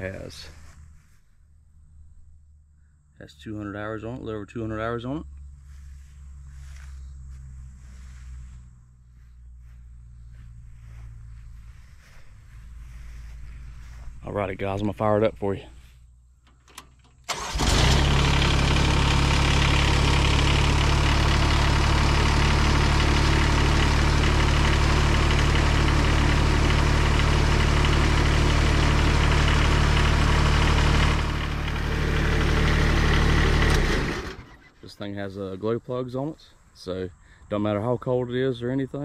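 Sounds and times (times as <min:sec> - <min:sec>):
diesel mower engine starting and idling: 0:09.1 - 0:35.4.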